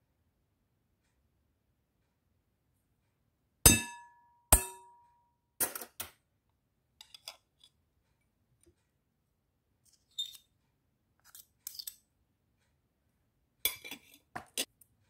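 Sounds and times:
metal spoon clinking glass bowl: 0:13.7 - 0:14.7.

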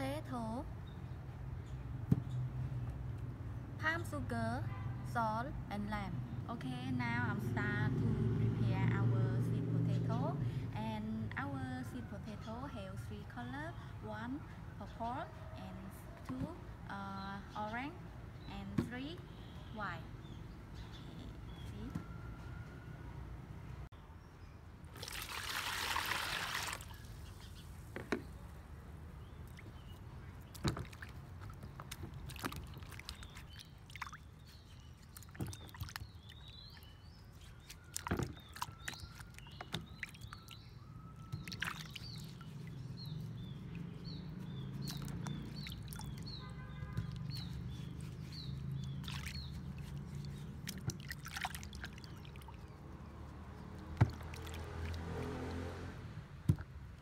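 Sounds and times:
water splashing and sloshing: 0:24.8 - 0:57.0
water pouring into plastic basin: 0:24.9 - 0:27.2, 0:48.8 - 0:52.6, 0:53.6 - 0:55.6.

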